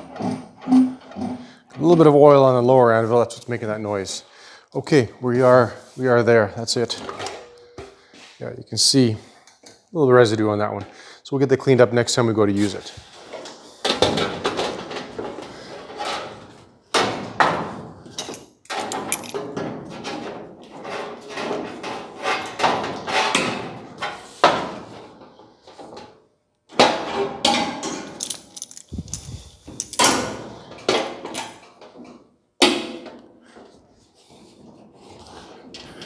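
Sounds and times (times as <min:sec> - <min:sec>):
sheet metal clanking and rattling: 0:13.2 - 0:26.0.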